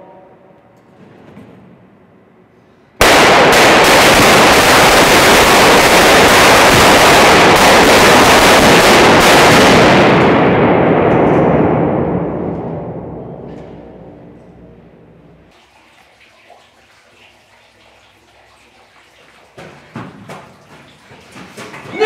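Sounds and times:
gunfire barrage: 3.0s - 12.4s.

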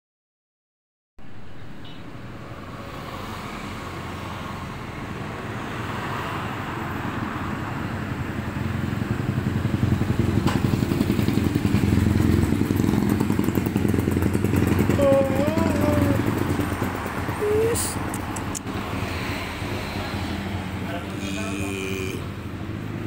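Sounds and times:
vehicle engine running: 8.6s - 19.7s
sharp click: 18.1s - 18.7s.

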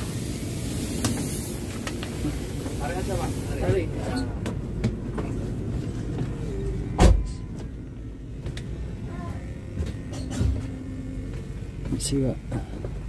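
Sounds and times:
bus interior low rumble: 0.0s - 13.0s
sharp thump: 7.0s - 7.4s.

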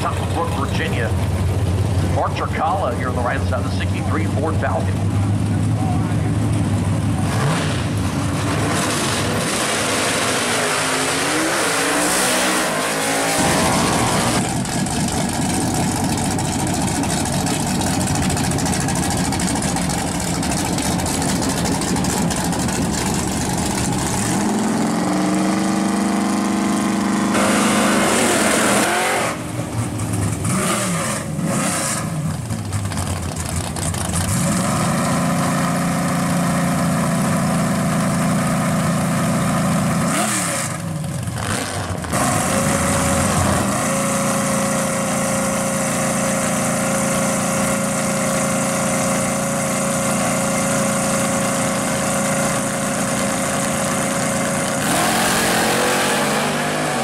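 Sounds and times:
engine idling: 0.0s - 7.2s, 13.9s - 25.4s, 32.2s - 34.6s
drag car engines revving and launching: 0.0s - 57.0s.

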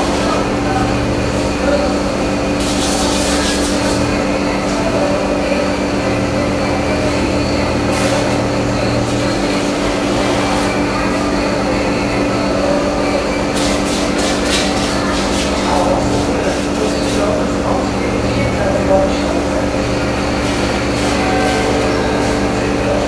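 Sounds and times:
vehicle mechanical rumble: 0.0s - 23.0s.

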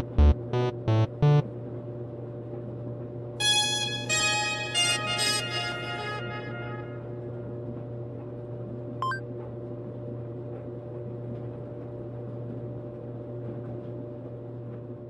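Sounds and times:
laundry machines humming: 0.0s - 1.8s.

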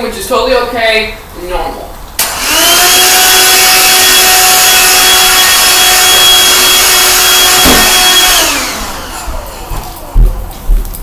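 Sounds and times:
vacuum motor winding down: 2.2s - 10.3s
vacuum cleaner running: 2.2s - 10.8s.

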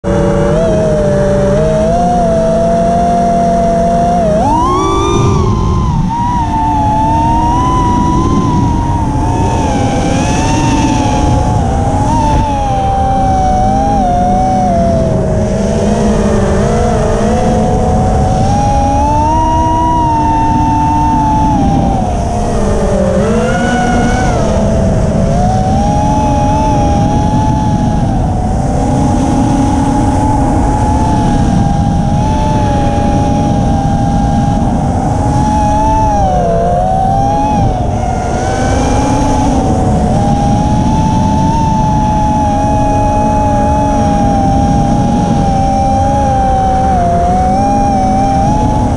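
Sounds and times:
quadcopter motors whining: 0.0s - 48.9s
wind on microphone: 0.0s - 48.9s.

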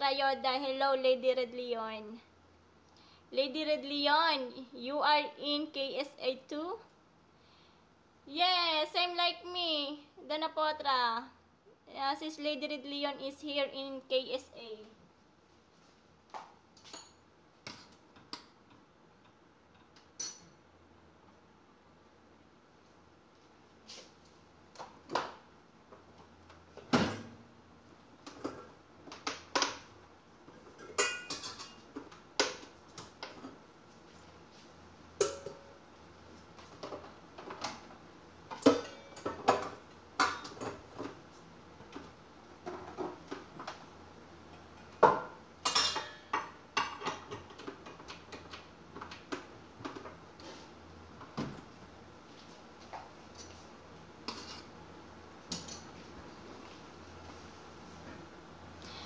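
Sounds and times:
dishes and utensils clinking: 30.8s - 31.8s, 35.2s - 35.7s, 38.6s - 40.7s, 45.6s - 47.5s.

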